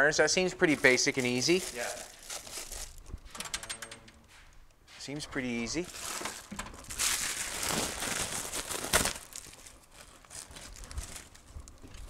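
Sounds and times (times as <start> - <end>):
plastic crinkling: 0.6 - 3.3, 5.8 - 12.0.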